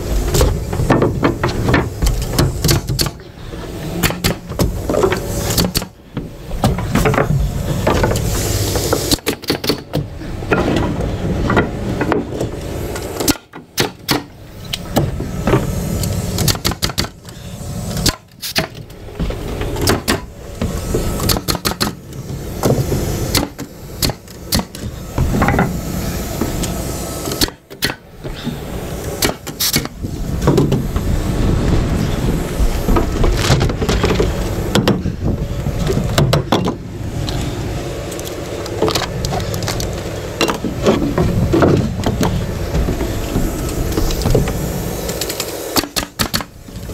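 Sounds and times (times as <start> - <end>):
steady low rumble: 0.0 - 9.2, 9.9 - 18.2, 28.0 - 45.8
nail gun firing: 2.4 - 3.2, 4.0 - 4.7, 5.5 - 6.0, 8.9 - 10.0, 13.0 - 14.4, 16.3 - 17.2, 18.0 - 18.8, 19.8 - 20.3, 21.2 - 22.0, 22.6 - 24.8, 27.2 - 28.1, 29.2 - 30.0, 45.0 - 46.6.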